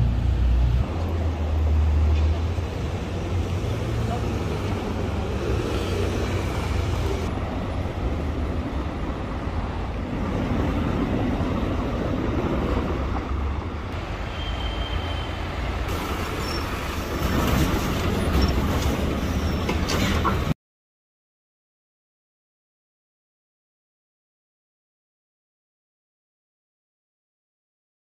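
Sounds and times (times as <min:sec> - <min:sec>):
traffic rumble: 0:00.0 - 0:20.6.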